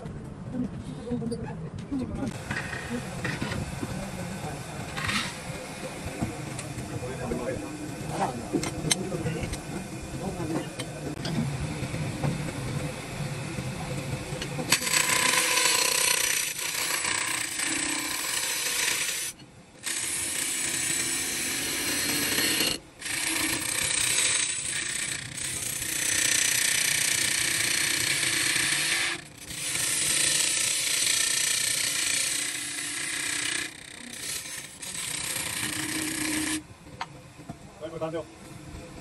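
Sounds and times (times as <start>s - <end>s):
power tool cutting wood: 14.6s - 36.7s.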